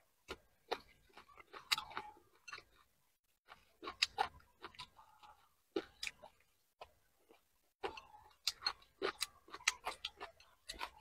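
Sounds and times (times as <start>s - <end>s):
wet chewing and lip-smacking: 0.0s - 11.0s.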